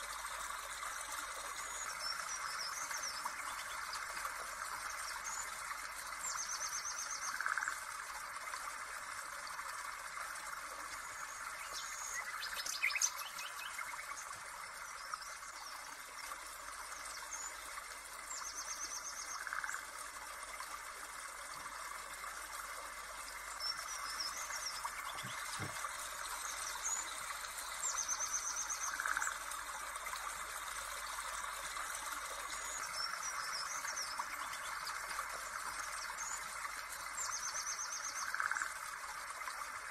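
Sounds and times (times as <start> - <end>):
birds chirping: 23.7 - 29.2.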